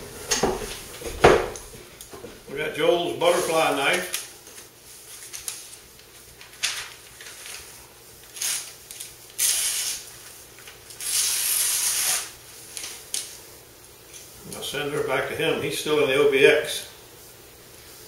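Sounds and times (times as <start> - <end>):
knife slicing paper: 8.3 - 10.1, 10.9 - 13.0.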